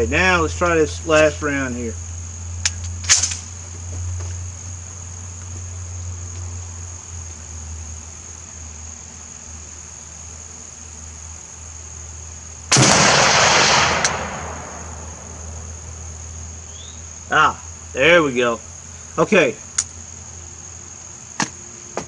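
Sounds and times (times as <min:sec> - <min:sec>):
rifle shot with long echo: 0:12.7 - 0:15.7.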